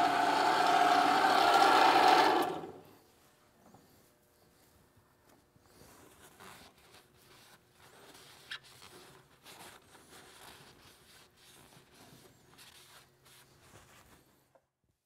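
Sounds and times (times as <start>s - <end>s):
paper towel wiping engine: 5.8s - 14.2s.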